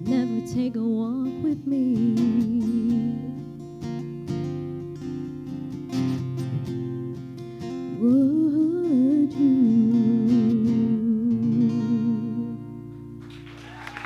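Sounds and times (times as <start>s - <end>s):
woman singing with vibrato: 0.0s - 3.4s, 8.0s - 12.6s
acoustic guitar chords: 0.0s - 13.6s.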